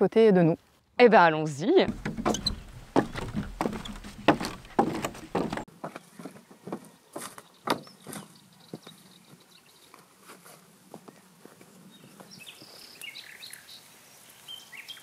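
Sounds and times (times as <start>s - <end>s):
footsteps on wooden steps: 1.8s - 8.3s.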